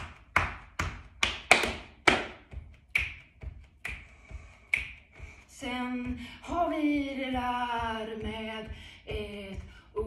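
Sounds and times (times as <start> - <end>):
finger snaps: 2.9 - 3.2, 3.8 - 5.1.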